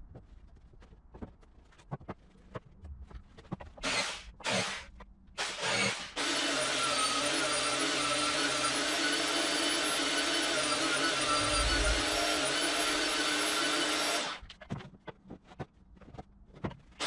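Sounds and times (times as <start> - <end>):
electric power tool running: 5.4 - 14.4.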